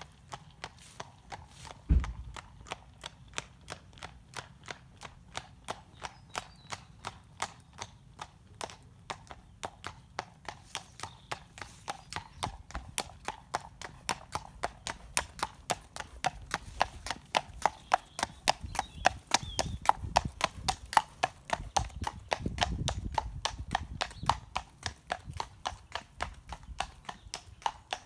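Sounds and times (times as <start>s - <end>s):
horse hooves clip-clopping on road: 0.0s - 28.0s
loud low thump: 1.9s - 2.4s.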